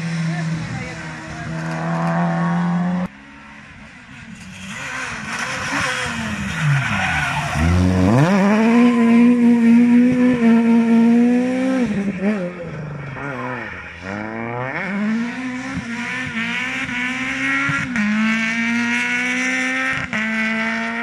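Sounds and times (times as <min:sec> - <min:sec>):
rally car engine accelerating: 0:00.0 - 0:03.1, 0:04.3 - 0:21.0
second rally car engine: 0:00.0 - 0:21.0.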